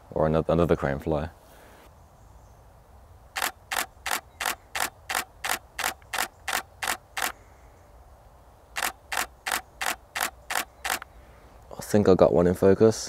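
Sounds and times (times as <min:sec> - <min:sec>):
camera shutter bursts: 0:03.4 - 0:07.4, 0:08.8 - 0:11.1.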